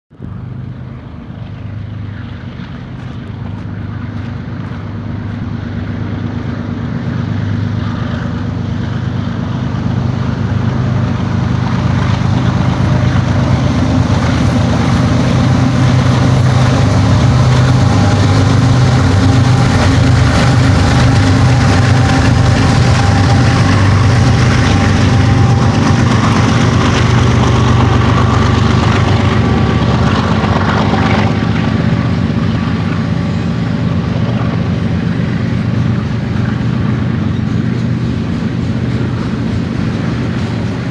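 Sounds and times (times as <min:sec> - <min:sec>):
locomotive engine drone: 0:00.1 - 0:40.9
rail cars rolling by: 0:00.1 - 0:40.9.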